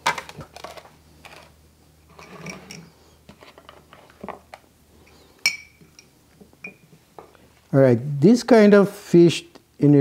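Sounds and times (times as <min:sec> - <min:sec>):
spoon clink ringing: 0:05.4 - 0:06.8.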